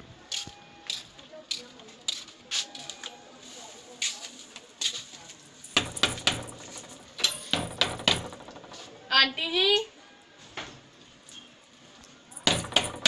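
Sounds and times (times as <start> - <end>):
knocking on wooden door: 5.8 - 8.9, 12.4 - 13.0.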